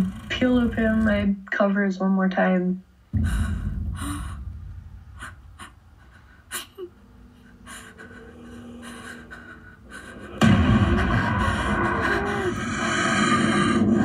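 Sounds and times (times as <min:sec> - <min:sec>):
deep boom: 0:03.1 - 0:05.4, 0:10.4 - 0:12.9.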